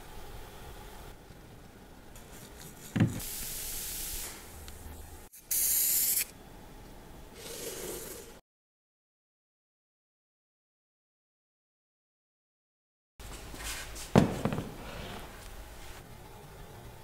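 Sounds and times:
aerosol spray hisses: 3.2 - 4.5, 5.4 - 6.3
knock: 14.2 - 14.8.

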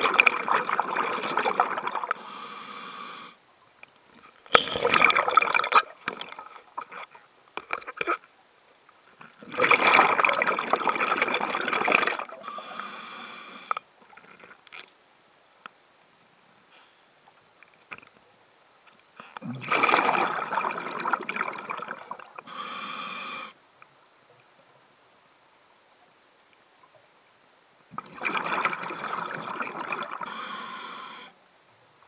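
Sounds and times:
exhaled air bubbling: 0.0 - 2.5, 4.4 - 8.2, 9.2 - 13.8, 19.2 - 23.0, 27.9 - 31.2
regulator inhale hiss: 2.1 - 3.4, 12.3 - 13.9, 16.6 - 17.2, 22.3 - 23.7, 30.2 - 31.5.

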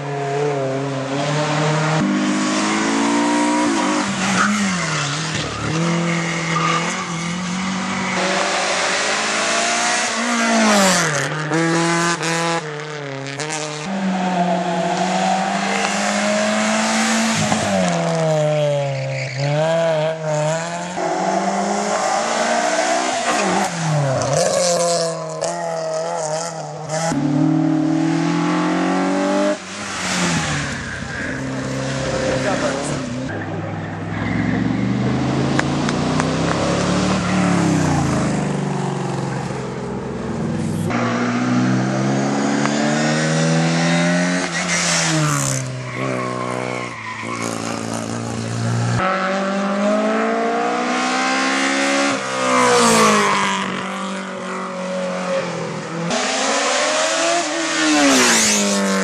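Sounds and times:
race car engines revving: 0.0 - 59.0.

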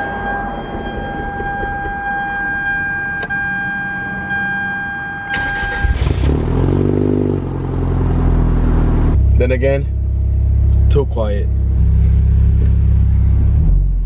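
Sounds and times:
high electronic tone: 0.0 - 6.0
car engine and exhaust running: 0.0 - 14.0.

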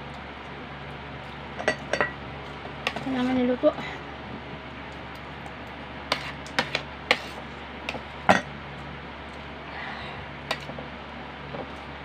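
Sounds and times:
utensils clinking against plate: 1.6 - 2.2.

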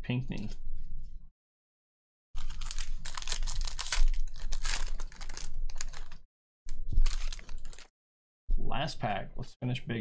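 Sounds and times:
foil wrapper crinkling and tearing: 2.4 - 6.2, 7.0 - 7.9.

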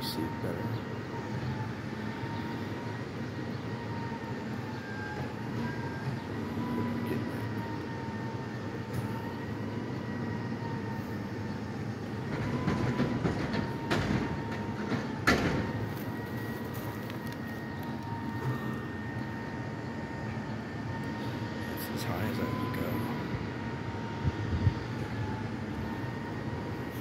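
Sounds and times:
garbage truck engine rumble: 0.0 - 27.0.

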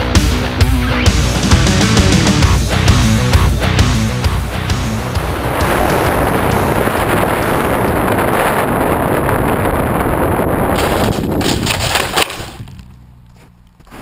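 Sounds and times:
plane skidding through snow: 2.8 - 14.0
wind rushing over microphone: 3.6 - 12.9.

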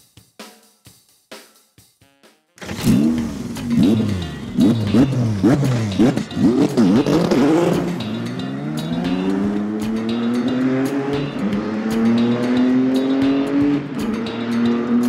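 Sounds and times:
race car engine revving: 2.6 - 15.0.

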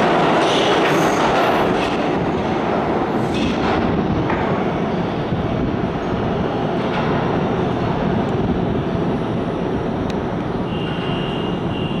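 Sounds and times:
subway train rumbling: 0.0 - 12.0.

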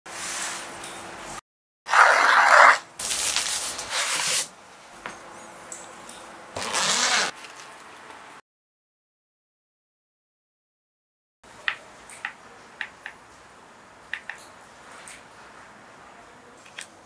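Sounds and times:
zipper being pulled open: 1.9 - 4.5, 6.6 - 7.4
packaging rustling: 3.0 - 4.5.

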